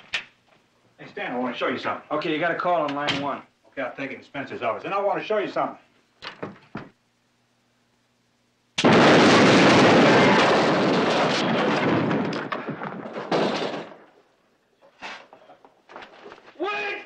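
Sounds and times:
explosion: 8.8 - 14.1
falling debris clattering: 8.8 - 14.5.

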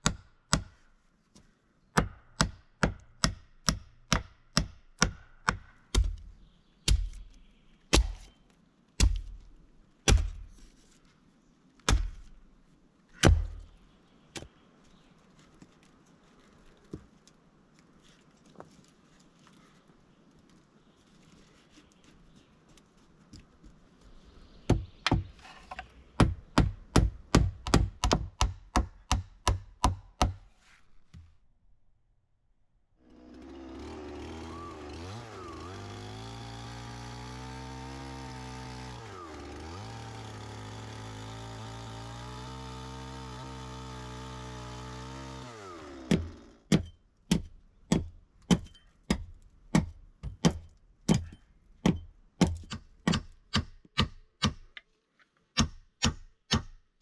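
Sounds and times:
sharp blows on wood: 7.9 - 8.3
chainsaw cutting log: 33.0 - 54.6.

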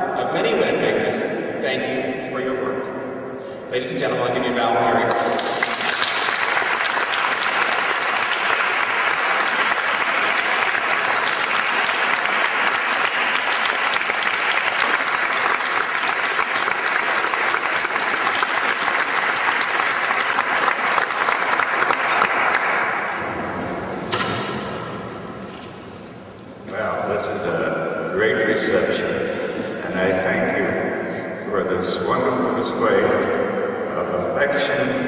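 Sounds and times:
audience applauding: 5.1 - 25.6.

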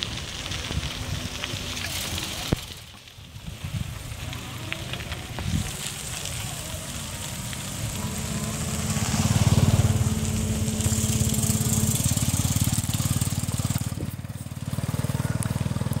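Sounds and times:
steady hum: 5.4 - 14.2
motorbike engine chugging: 5.5 - 16.0.

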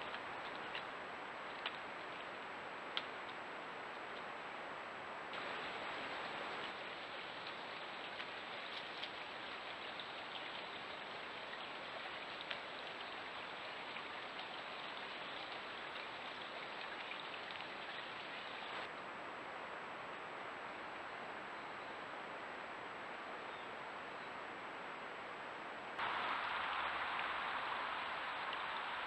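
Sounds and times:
stream running: 0.0 - 4.3, 5.3 - 18.9, 26.0 - 29.0
faint ticks: 3.0 - 4.3
faint high whine: 26.0 - 29.0.

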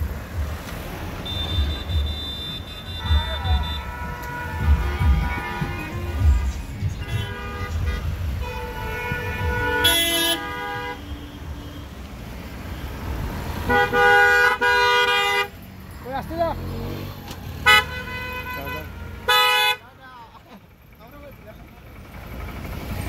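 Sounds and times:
moving vehicle rumble: 0.0 - 23.0
vehicle horns honking: 1.1 - 12.1, 12.7 - 15.6, 17.5 - 20.0.

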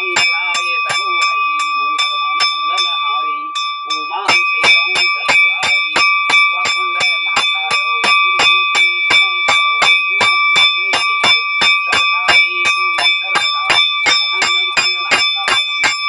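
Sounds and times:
hand bell ringing rapidly: 0.0 - 16.0.

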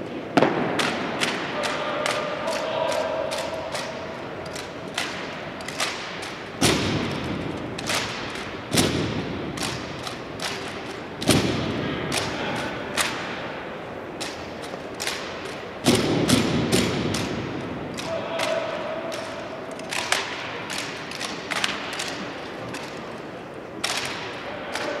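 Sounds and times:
hands slapping rifles: 0.8 - 13.2, 14.2 - 23.0, 23.8 - 25.0.

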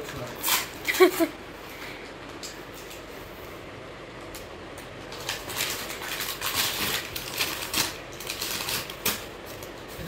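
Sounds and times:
packaging crinkling and rustling: 0.0 - 1.2, 4.9 - 10.0.

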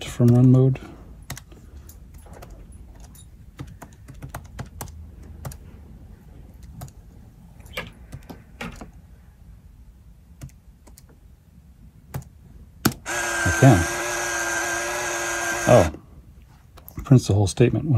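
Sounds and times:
keys clicking: 1.2 - 5.6.

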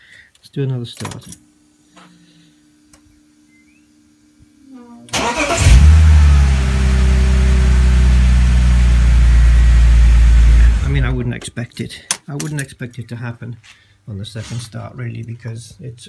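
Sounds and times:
car engine cranking and idling: 5.1 - 11.3.

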